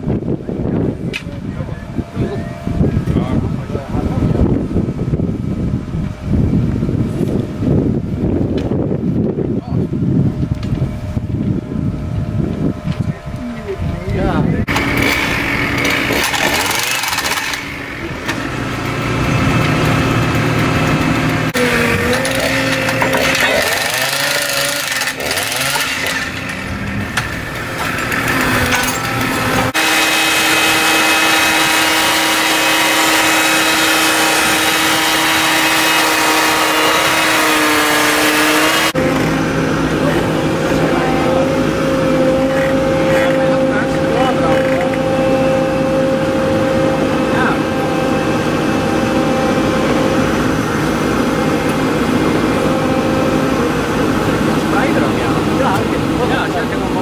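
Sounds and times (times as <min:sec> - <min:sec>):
hydraulic excavator engines: 0:00.0 - 0:57.0
petrol power tool running: 0:14.1 - 0:57.0.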